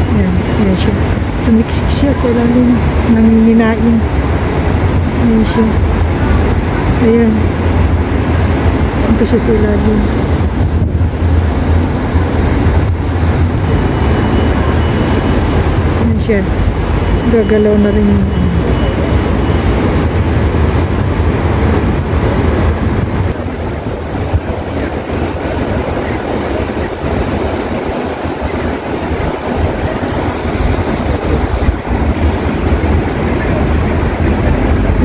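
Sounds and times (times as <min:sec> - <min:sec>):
fountain water running: 0:00.0 - 0:10.5
city traffic: 0:00.0 - 0:35.0
wind buffeting microphone: 0:00.0 - 0:35.0.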